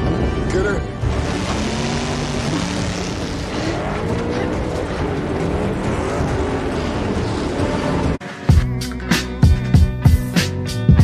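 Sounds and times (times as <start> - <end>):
car engines revving: 0.0 - 8.2.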